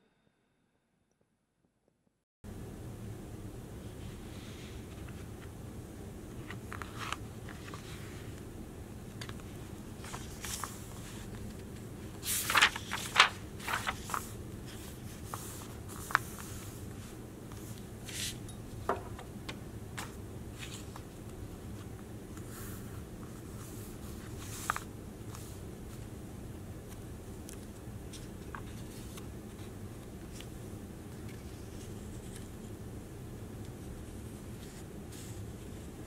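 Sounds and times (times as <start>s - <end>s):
low background noise: 2.5s - 36.0s
paper rustling: 6.3s - 8.4s, 9.2s - 18.4s, 19.9s - 26.0s, 26.9s - 30.5s
paper crinkles and swishes: 9.2s - 18.4s.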